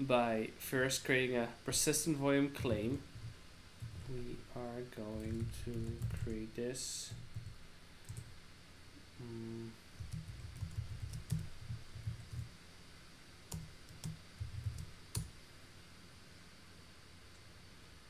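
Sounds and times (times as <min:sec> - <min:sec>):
computer keyboard typing: 0:05.1 - 0:06.4, 0:07.1 - 0:08.3, 0:10.0 - 0:12.5, 0:13.5 - 0:15.3.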